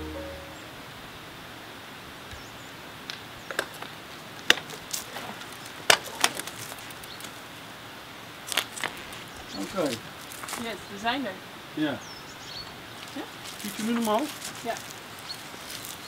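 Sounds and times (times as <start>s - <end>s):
outdoor background hiss: 0.0s - 16.0s.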